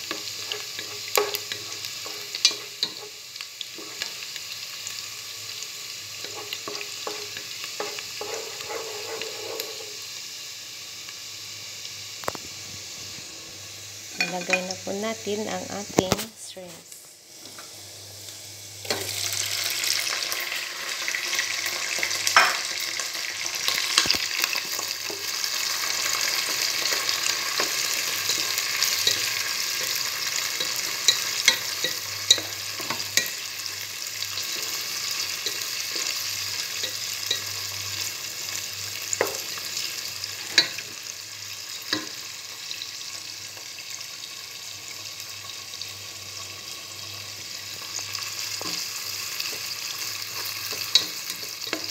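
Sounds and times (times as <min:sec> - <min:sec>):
shrimp sizzling in hot oil: 0:00.0 - 0:51.9
wooden spatula scraping a pan: 0:06.3 - 0:10.0.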